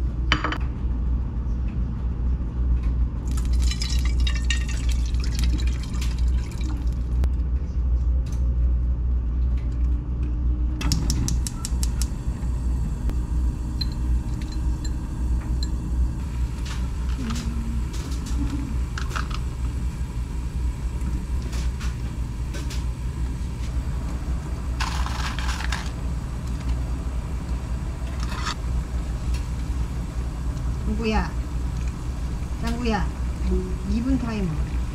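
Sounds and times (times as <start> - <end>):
low rumble: 0.0 - 34.9
water pouring into saucepan: 3.3 - 7.1.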